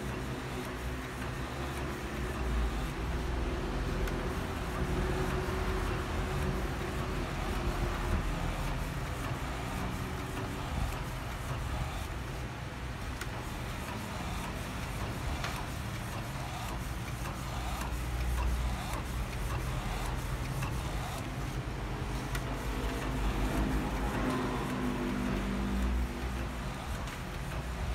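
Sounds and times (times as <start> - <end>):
printer feed rollers whirring: 0.0 - 27.9.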